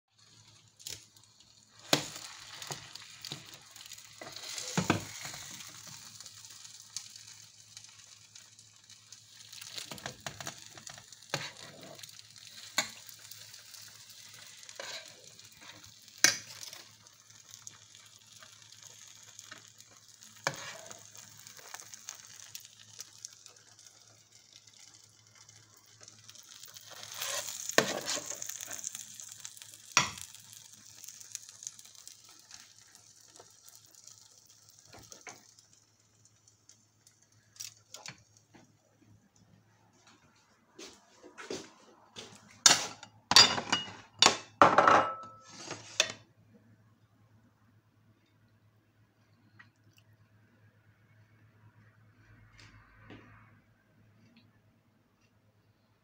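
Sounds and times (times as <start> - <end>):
food sizzling faintly in dish: 0.1 - 46.3
metal spoon scraping a dish: 27.1 - 28.5.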